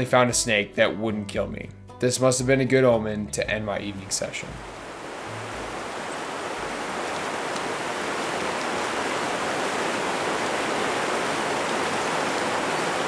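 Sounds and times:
river water rushing over rocks: 4.6 - 13.0.

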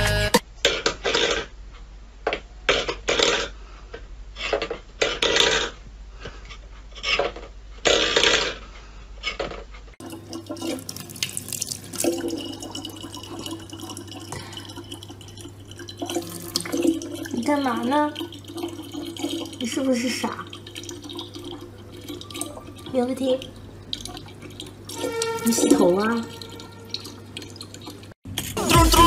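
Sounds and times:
water trickling into plastic jug: 10.0 - 28.2.

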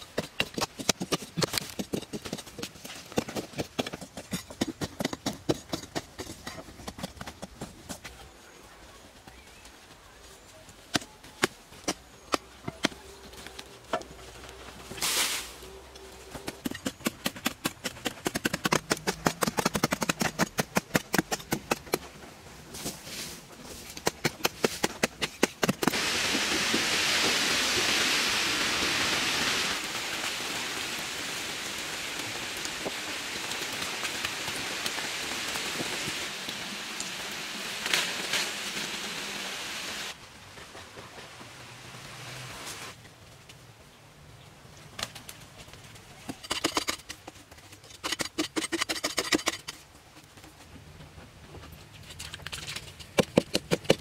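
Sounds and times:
digging tools striking hard earth: 0.0 - 7.7, 16.4 - 22.1, 23.8 - 26.0, 46.3 - 49.8, 53.0 - 54.0
steady rushing hiss: 25.7 - 43.1.

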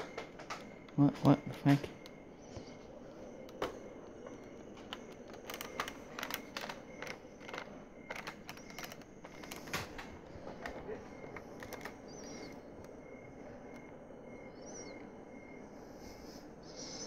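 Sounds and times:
handling clicks and taps: 0.0 - 13.0.

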